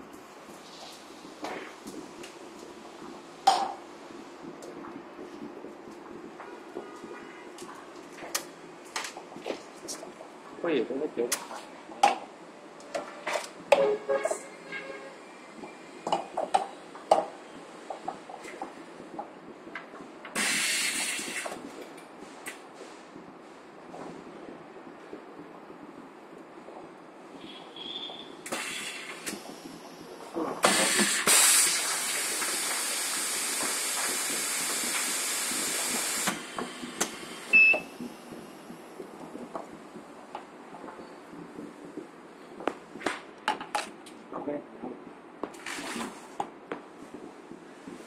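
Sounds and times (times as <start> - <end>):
compressed air hissing: 20.3 - 21.7, 27.4 - 38.7.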